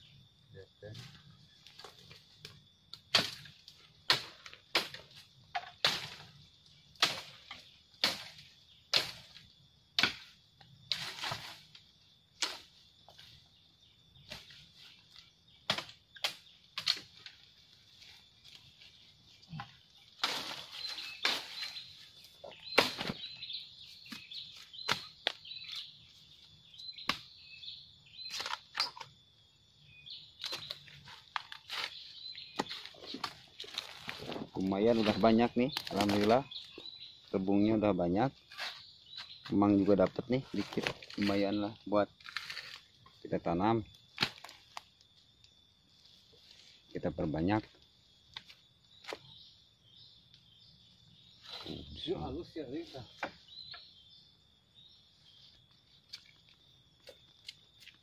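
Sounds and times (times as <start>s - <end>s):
footsteps crunching dry leaves and twigs: 20.2s - 25.9s, 30.5s - 37.2s.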